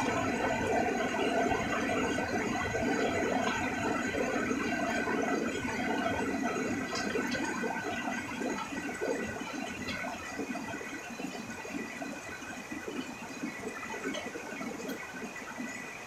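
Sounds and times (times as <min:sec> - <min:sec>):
heavy rain pouring off roof: 0:00.0 - 0:15.9.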